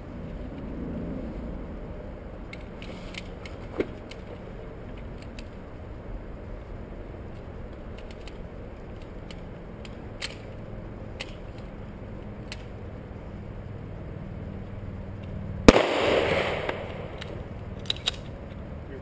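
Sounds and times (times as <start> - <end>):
loud handgun shot: 15.7 - 17.2.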